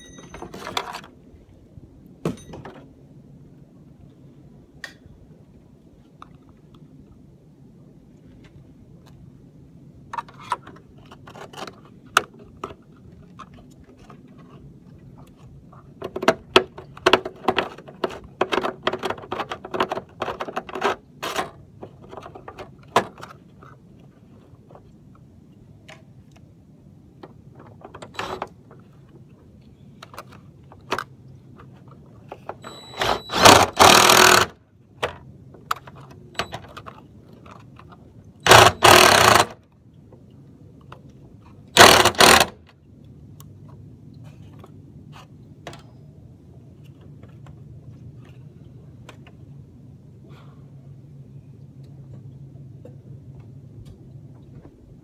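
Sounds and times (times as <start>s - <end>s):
cordless drill driving screw: 32.6s - 34.5s, 38.5s - 39.6s, 41.8s - 42.6s.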